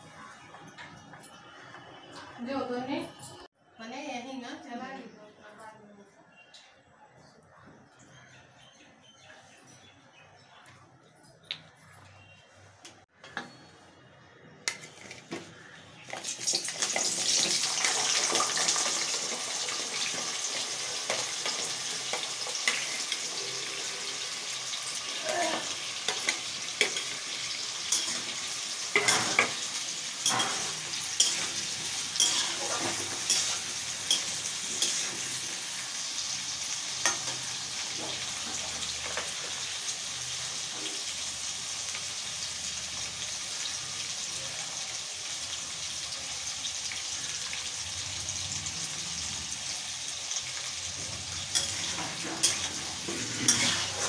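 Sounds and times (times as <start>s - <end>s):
food sizzling in hot oil: 16.0s - 54.0s
metal spatula scraping a pan: 25.5s - 39.6s, 51.0s - 54.0s.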